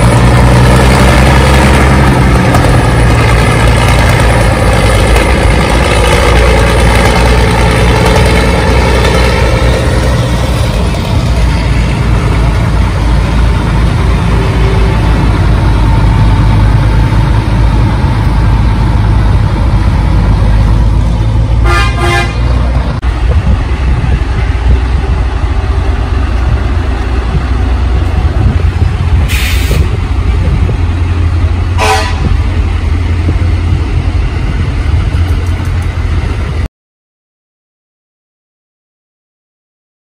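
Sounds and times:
truck diesel engines driving past: 0.0 - 36.7
truck horn toots: 21.6 - 22.5, 31.8 - 32.4
burst of hiss: 29.3 - 29.9.

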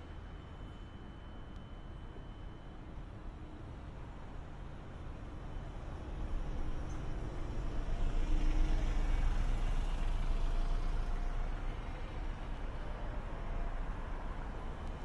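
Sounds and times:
bus engine rumble: 5.2 - 15.0.

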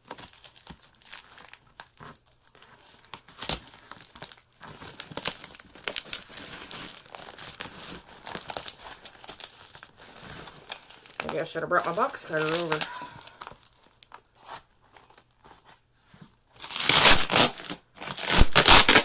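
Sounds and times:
packing tape crinkling and tearing: 0.0 - 15.8, 16.5 - 19.0
scissors cutting tape and cardboard: 16.7 - 19.0.

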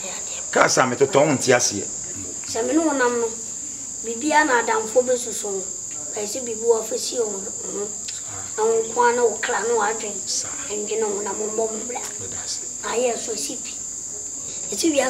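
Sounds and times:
boy talking: 0.0 - 0.5, 2.2 - 13.8, 14.7 - 15.0
crickets trilling: 0.0 - 15.0
man talking: 0.5 - 2.5, 12.0 - 12.6.

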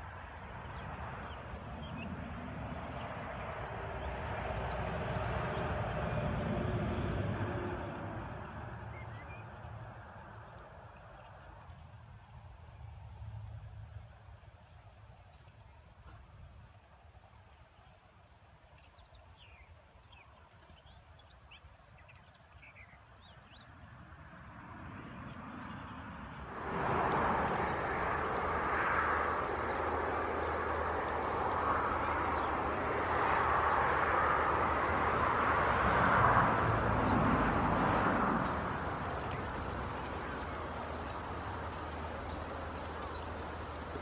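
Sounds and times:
loud steady rushing noise: 0.0 - 10.4, 26.4 - 44.0.

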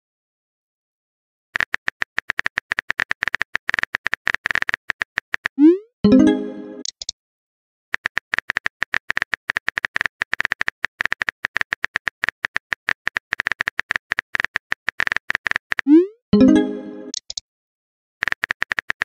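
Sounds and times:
phone keyboard typing clicks: 1.6 - 5.6, 8.0 - 15.9, 18.2 - 19.0.

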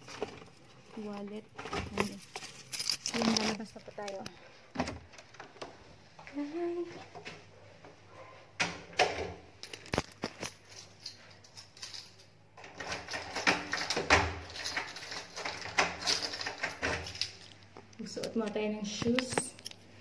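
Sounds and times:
handling clicks and knocks: 8.6 - 19.8.

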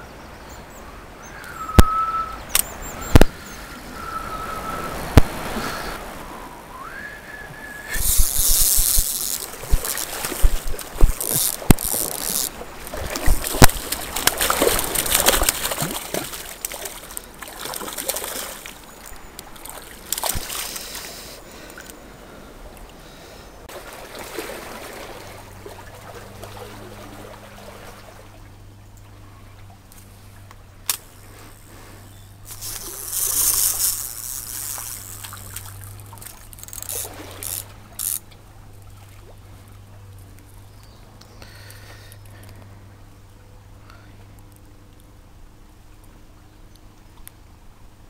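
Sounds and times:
small stream trickling: 0.0 - 48.0
clicks and rustling of handling: 7.9 - 21.0, 32.5 - 38.4.

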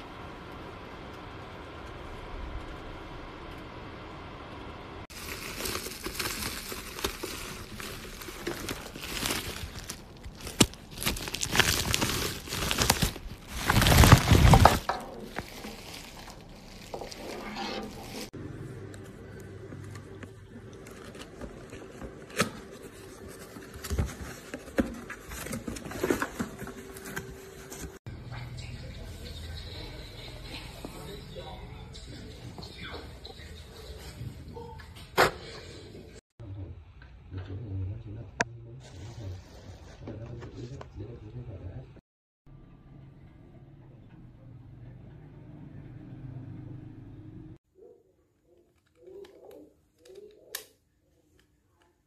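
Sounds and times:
fan heater running: 0.0 - 17.3
bubble wrap crinkling and popping: 5.1 - 17.4
cardboard scraping and rustling: 5.2 - 18.4, 20.7 - 28.0.

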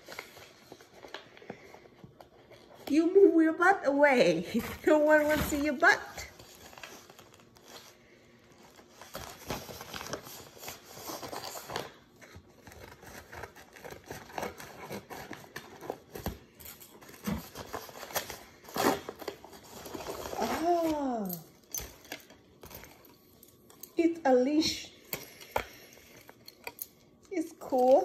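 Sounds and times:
envelope crinkling: 6.2 - 23.6.

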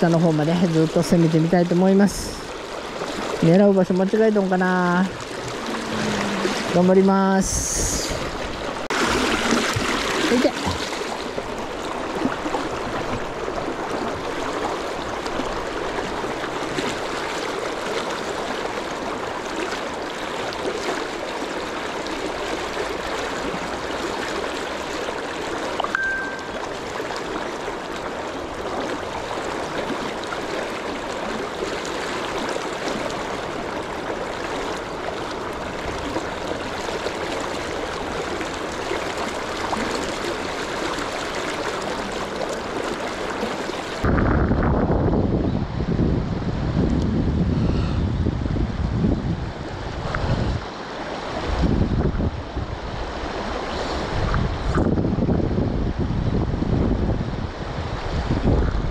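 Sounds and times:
river water rushing: 0.0 - 44.1, 49.4 - 54.7
high beep: 25.9 - 26.6.

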